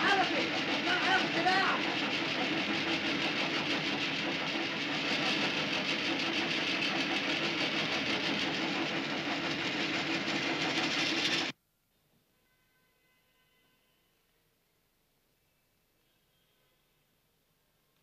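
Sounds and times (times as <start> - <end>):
band saw running: 0.0 - 11.5.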